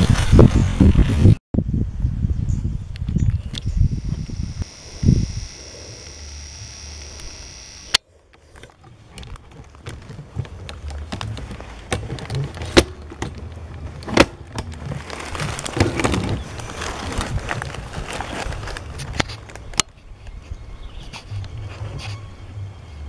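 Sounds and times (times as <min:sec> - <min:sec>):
high insect buzz: 0:03.6 - 0:08.0
rifle handling clicks and knocks: 0:08.3 - 0:14.9.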